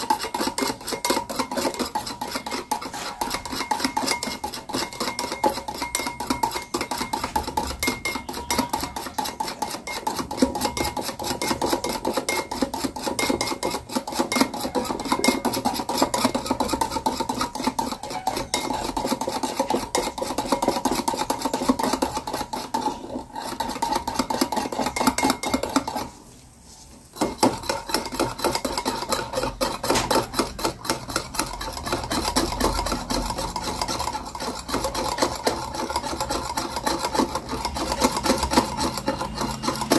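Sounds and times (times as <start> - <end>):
whisk scraping glass bowl: 0.0 - 39.9.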